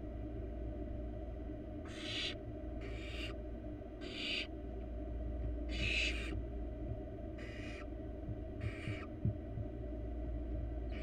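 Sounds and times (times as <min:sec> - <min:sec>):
steady low hum: 0:00.0 - 0:11.0
owl nestlings hissing: 0:01.9 - 0:03.4, 0:04.0 - 0:04.5, 0:05.7 - 0:06.3, 0:07.4 - 0:07.8.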